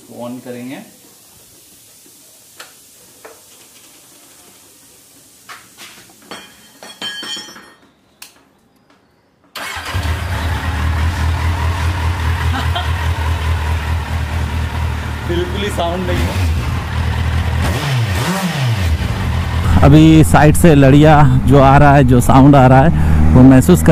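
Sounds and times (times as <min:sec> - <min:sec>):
motorcycle engine starting and idling: 0:09.5 - 0:20.3.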